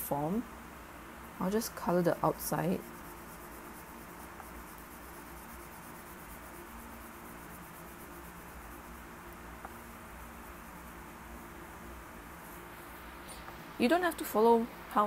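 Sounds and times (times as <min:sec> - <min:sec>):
low steady hum: 0:00.0 - 0:15.0
crayon scratching on paper: 0:01.9 - 0:09.0.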